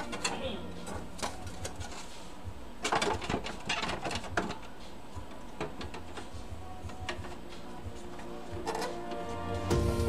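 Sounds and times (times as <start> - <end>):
hard plastic clicks and scraping: 0.0 - 2.1, 2.8 - 7.4.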